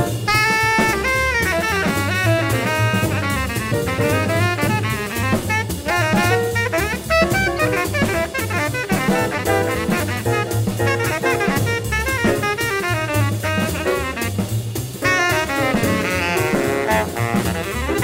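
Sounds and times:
string bass: 0:00.0 - 0:08.6
drum kit: 0:00.0 - 0:18.0
tenor saxophone solo: 0:00.0 - 0:18.0.

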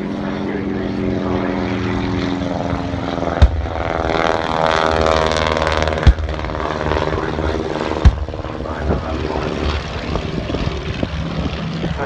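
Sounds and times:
biplane piston engines droning: 0:00.0 - 0:12.0
pyrotechnic bangs: 0:03.3 - 0:08.7.

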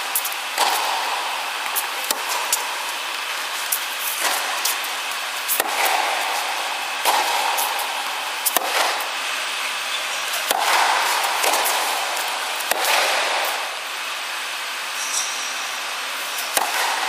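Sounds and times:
ball bouncing on hard court: 0:00.2 - 0:09.1, 0:10.0 - 0:13.7, 0:16.4 - 0:17.0
tennis ball struck by rackets: 0:00.2 - 0:09.2, 0:10.4 - 0:13.8, 0:16.3 - 0:17.0.

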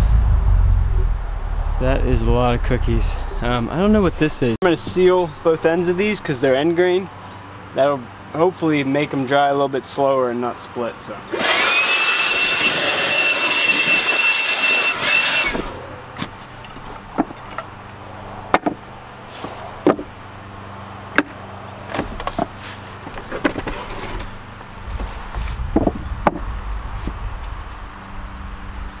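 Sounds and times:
low rumble: 0:00.0 - 0:04.6, 0:24.9 - 0:29.0
faint hum: 0:00.0 - 0:06.2
cordless blower running: 0:11.3 - 0:15.9
wooden boards knocking and clattering: 0:16.2 - 0:17.7, 0:18.5 - 0:18.8, 0:19.4 - 0:20.1, 0:21.2 - 0:23.8, 0:25.7 - 0:26.5.

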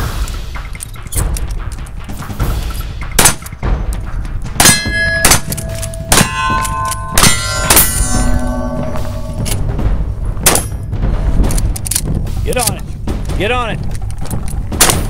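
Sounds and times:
shotgun blasts: 0:02.5 - 0:03.6, 0:04.6 - 0:09.3, 0:14.7 - 0:15.0
metallic ringing: 0:04.6 - 0:11.0.

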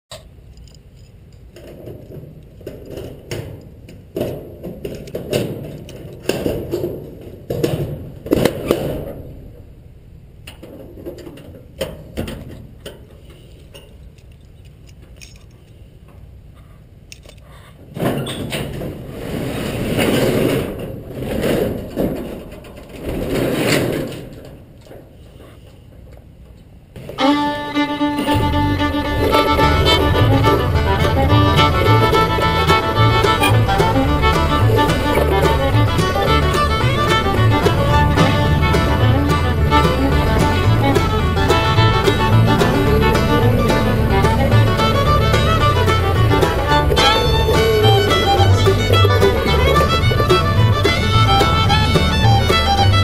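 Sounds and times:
padlock clicking and rattling: 0:14.2 - 0:15.6
keys jingling: 0:14.2 - 0:15.8
door scraping and rattling open: 0:17.8 - 0:25.0, 0:27.0 - 0:53.0.

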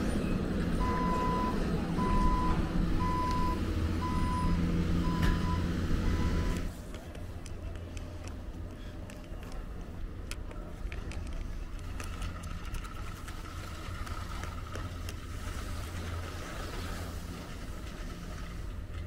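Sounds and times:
skis scraping over snow: 0:13.2 - 0:19.0.

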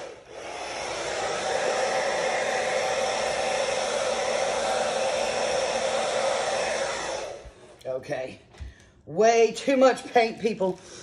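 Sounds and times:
hair dryer blowing: 0:00.0 - 0:07.8.

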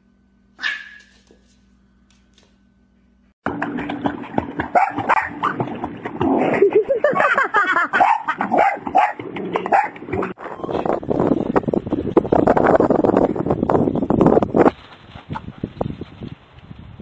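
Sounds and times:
small dog barking and yipping: 0:00.6 - 0:01.4, 0:04.7 - 0:05.5, 0:08.0 - 0:10.0
water splashing: 0:03.5 - 0:10.4.

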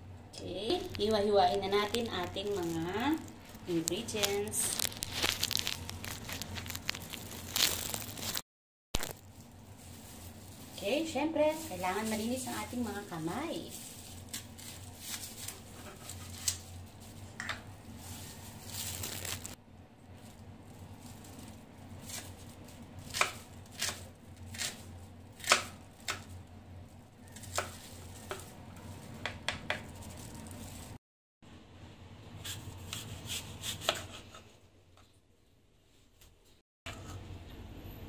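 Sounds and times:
knife chopping on cutting board: 0:32.9 - 0:34.4.

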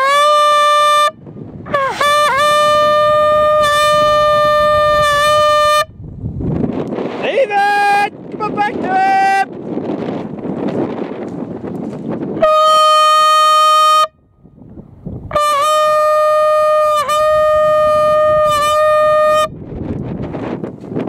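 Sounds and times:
hunting horn blowing: 0:00.0 - 0:06.0, 0:12.4 - 0:14.2, 0:15.3 - 0:19.6
wind on microphone: 0:00.0 - 0:21.0.

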